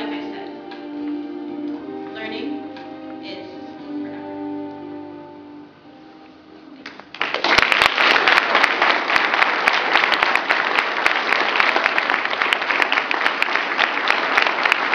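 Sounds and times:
audience applauding: 6.8 - 14.9.

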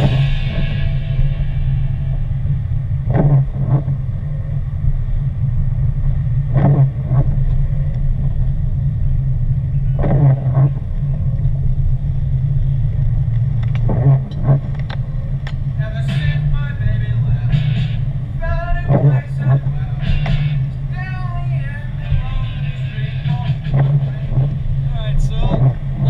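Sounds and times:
engine and road rumble: 0.0 - 26.0
windshield wipers swishing: 3.0 - 4.6, 6.0 - 26.0.

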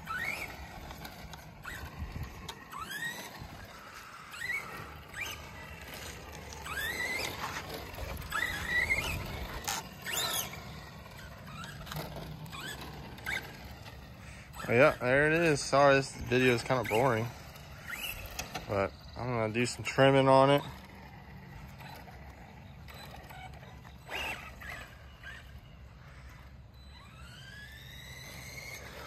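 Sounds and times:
toy car motor whining: 0.0 - 29.0.

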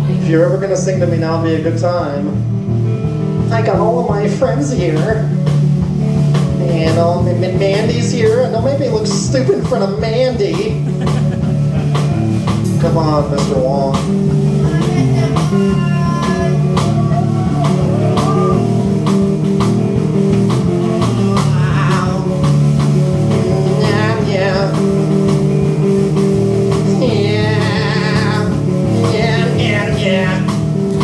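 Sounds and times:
drum kit beat: 0.0 - 31.0
electric guitar chords: 0.0 - 31.0
man singing: 14.6 - 18.7, 21.1 - 22.5, 23.3 - 25.0, 26.8 - 30.6.

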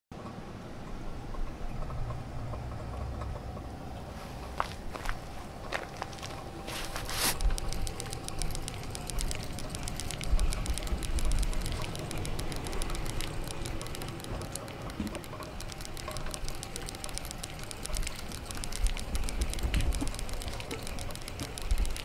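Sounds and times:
bicycle freewheel ticking: 6.1 - 22.0.

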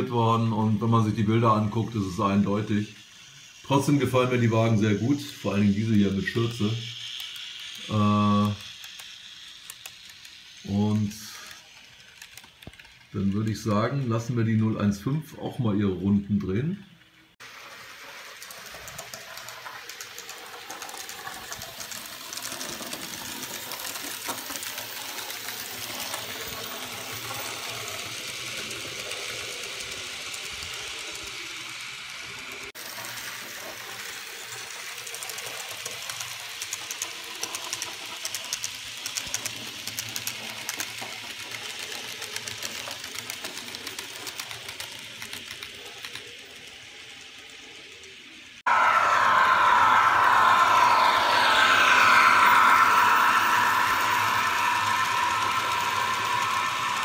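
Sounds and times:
model train motor whirring: 0.0 - 14.9, 16.9 - 57.0
wheels clicking on rails: 0.0 - 57.0.

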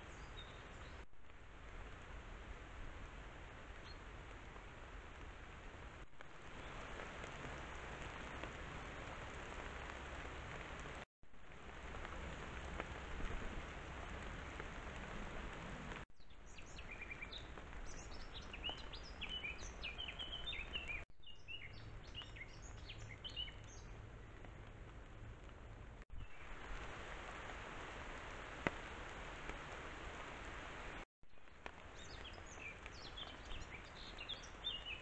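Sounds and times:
songbird chirping: 16.2 - 24.7, 31.3 - 35.0.

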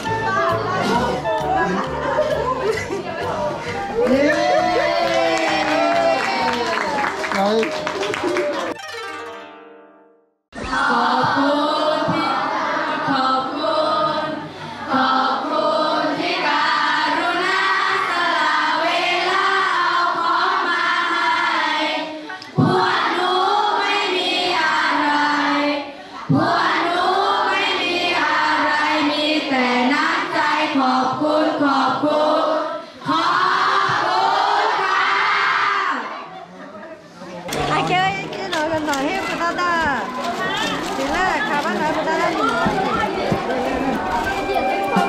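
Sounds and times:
musical accompaniment: 0.0 - 10.4, 42.6 - 45.0
group singing together: 10.6 - 36.4.

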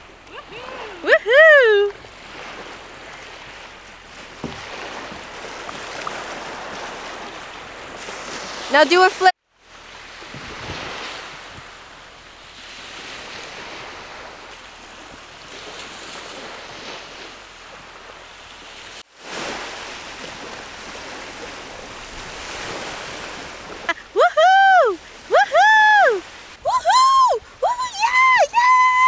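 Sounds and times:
waves washing on a beach: 0.0 - 29.0
wind on microphone: 10.0 - 12.0.

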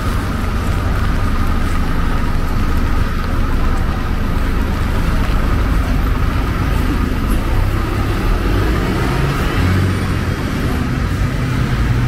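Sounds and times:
rain and wet road hiss: 0.0 - 12.0
vehicle engines rumbling: 0.0 - 12.0.

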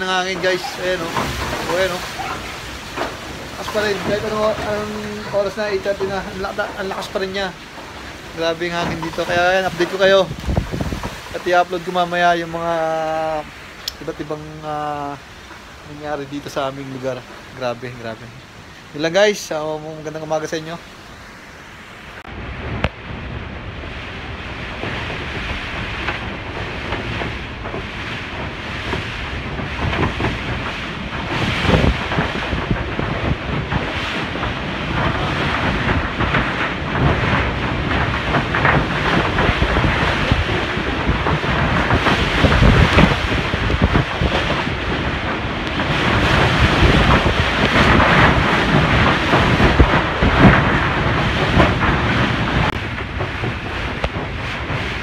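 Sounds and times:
metal roof knocking and rattling: 0.0 - 12.9, 24.5 - 55.0
strong wind gusting: 0.0 - 55.0
wind buffeting microphone: 0.0 - 55.0.

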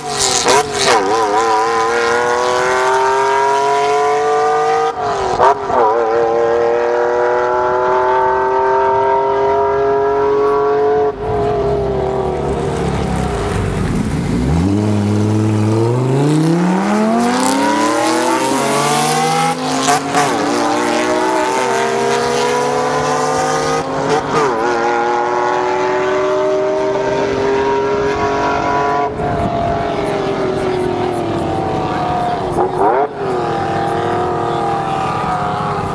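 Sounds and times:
car engine revving with upshifts: 0.0 - 35.9
distant engine holding high revs: 0.0 - 35.9.

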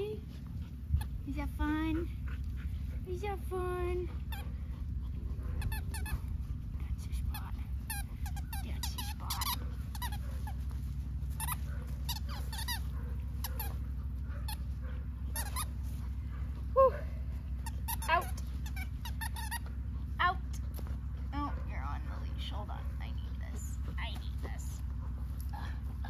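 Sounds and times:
steady low hum: 0.0 - 26.0
dog chewing: 4.1 - 16.7, 17.4 - 25.6
squeaky dog toy squeaking: 7.9 - 10.2, 11.4 - 12.9, 15.4 - 15.8, 17.6 - 19.7.

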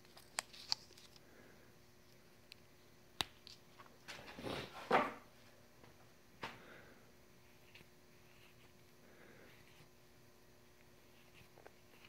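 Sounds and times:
tape rustle: 0.0 - 1.2.

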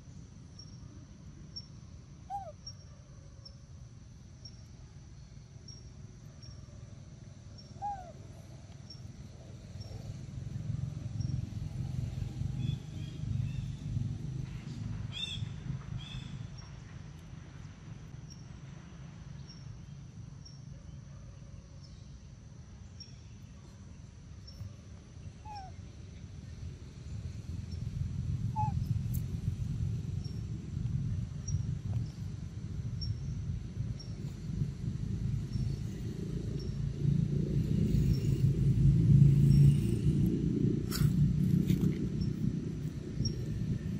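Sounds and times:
low uneven rumble: 7.3 - 19.2, 23.4 - 43.9
low bird call: 7.6 - 8.2, 25.4 - 25.8, 28.5 - 29.2
birds chirping and calling: 28.6 - 28.9.

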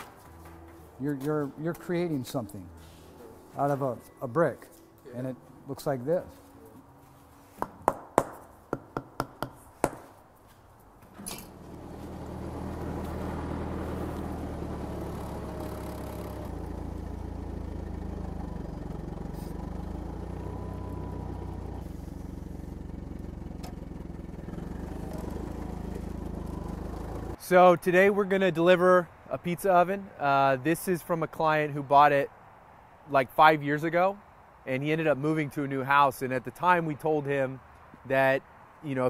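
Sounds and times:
forklift engine humming: 0.0 - 7.5, 11.0 - 27.4.

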